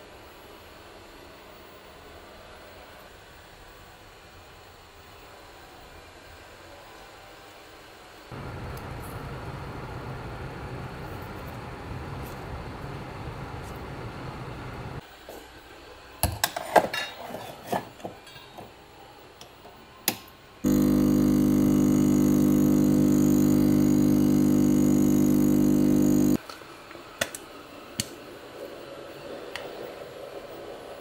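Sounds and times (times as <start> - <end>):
espresso machine pump humming: 20.7 - 26.4.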